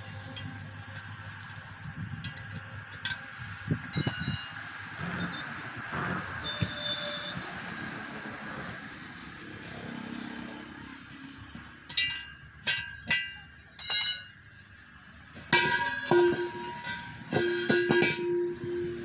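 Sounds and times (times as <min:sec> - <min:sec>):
road traffic noise: 0:00.0 - 0:19.0
metallic clinks: 0:11.9 - 0:14.4, 0:15.6 - 0:19.0.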